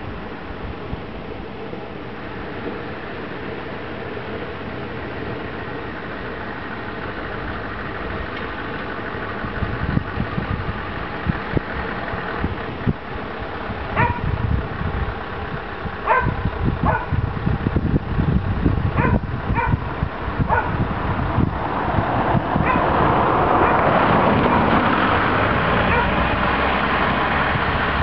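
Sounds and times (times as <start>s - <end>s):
diesel truck engine running: 0.0s - 28.0s
dog barking: 14.0s - 14.3s, 16.0s - 17.2s, 19.0s - 19.9s, 20.5s - 20.8s, 22.6s - 22.9s, 25.9s - 26.2s.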